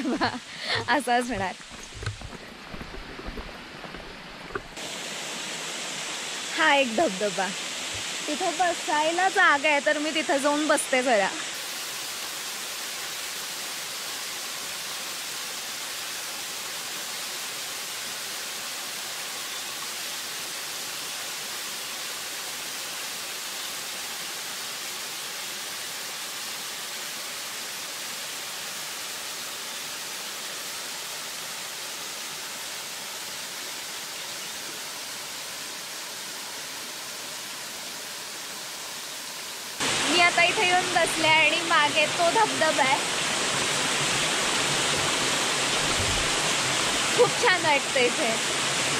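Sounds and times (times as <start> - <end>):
waterfall splashing over rocks: 0.0 - 48.9.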